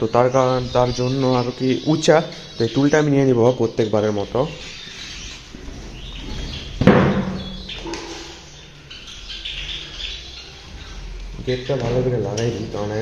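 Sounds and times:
sparrows chirping: 0:00.0 - 0:13.0
loud thump: 0:06.8 - 0:08.2.

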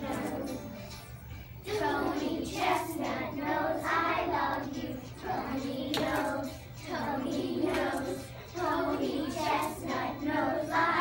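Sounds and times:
children singing: 0:00.0 - 0:01.0, 0:01.6 - 0:11.0
sharp clap: 0:05.9 - 0:06.4.

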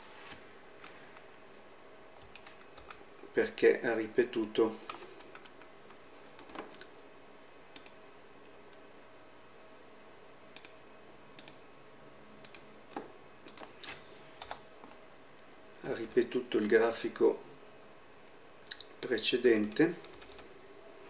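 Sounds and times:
keyboard and mouse clicks: 0:06.4 - 0:06.9, 0:07.8 - 0:08.0, 0:10.6 - 0:10.8, 0:11.4 - 0:11.6, 0:12.4 - 0:14.6.

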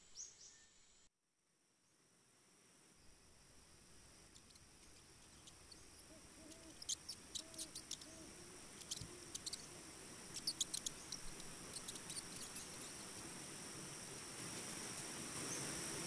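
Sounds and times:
high insect hum: 0:02.5 - 0:16.0
claws scratching on tree bark: 0:04.8 - 0:09.7, 0:10.3 - 0:13.3, 0:13.9 - 0:15.0.

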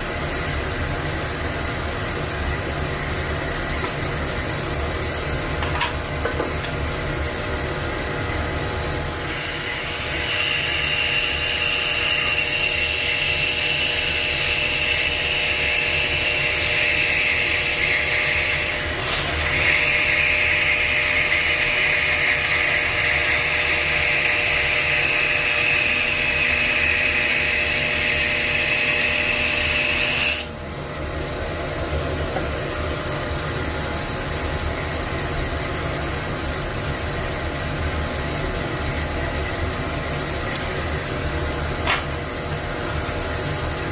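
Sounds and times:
bandsaw motor running: 0:09.1 - 0:30.5.

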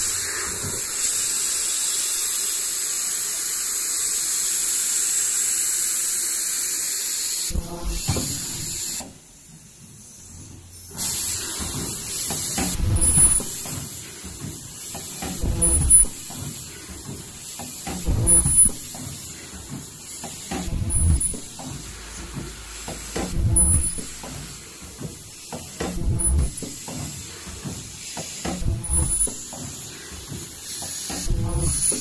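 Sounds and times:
air hissing: 0:00.0 - 0:32.0
mechanical thumps: 0:07.5 - 0:09.0, 0:11.0 - 0:32.0.

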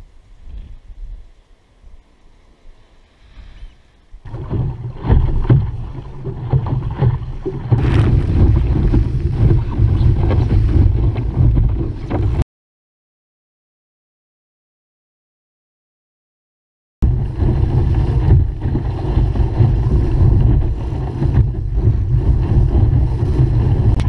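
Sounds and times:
water splashing against hull: 0:04.2 - 0:12.4, 0:17.0 - 0:24.0
wind buffeting microphone: 0:04.2 - 0:12.4, 0:17.0 - 0:24.0.

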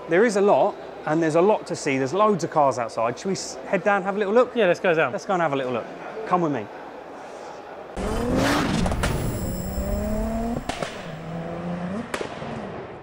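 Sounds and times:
car engine revving: 0:08.0 - 0:12.1.

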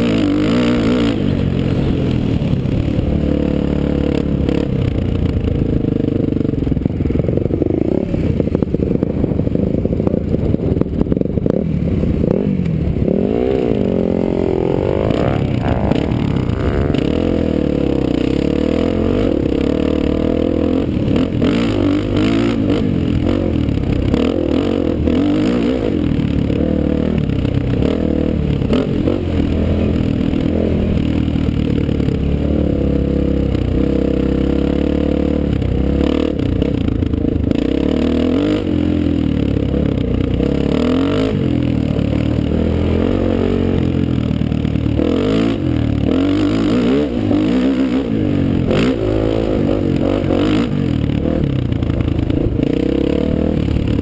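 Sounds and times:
dirt bike engine revving: 0:00.0 - 0:06.1, 0:11.1 - 0:54.0.

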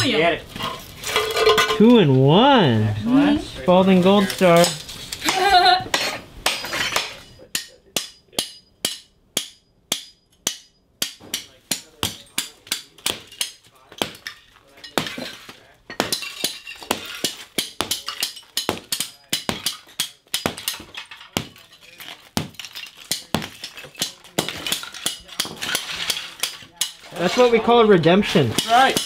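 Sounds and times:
shards clinking and clattering: 0:00.0 - 0:01.9, 0:04.0 - 0:08.7, 0:11.4 - 0:29.0
sledgehammer cracking tiles: 0:11.0 - 0:29.0.

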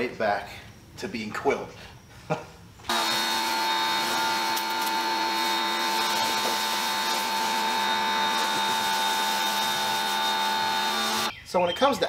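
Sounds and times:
pressure washer motor whine: 0:02.9 - 0:11.3.

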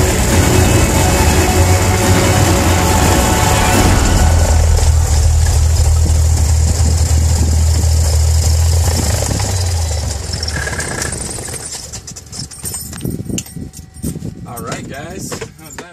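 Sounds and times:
airplane engine idling: 0:00.0 - 0:11.4.

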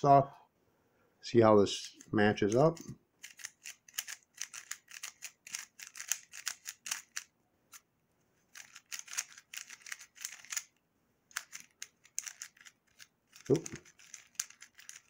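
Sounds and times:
plastic puzzle cube clicking: 0:03.2 - 0:07.8, 0:08.6 - 0:15.0.

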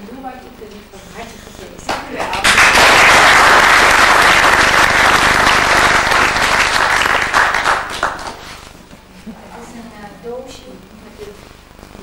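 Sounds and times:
group applause: 0:01.9 - 0:08.6.

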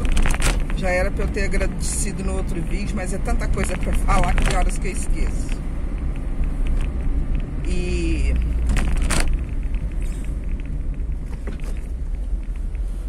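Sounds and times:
engine and tyre rumble: 0:00.0 - 0:13.0.

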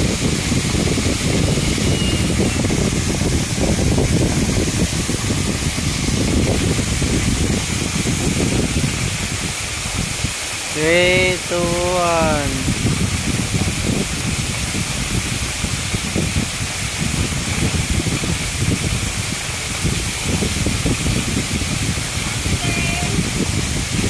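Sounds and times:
waterfall pouring onto rocks: 0:00.0 - 0:24.0
person calling out: 0:10.7 - 0:12.7, 0:22.6 - 0:23.3.

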